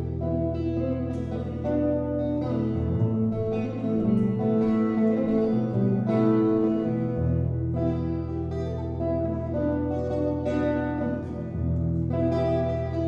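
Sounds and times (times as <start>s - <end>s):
electric guitar melody: 0.0s - 13.0s.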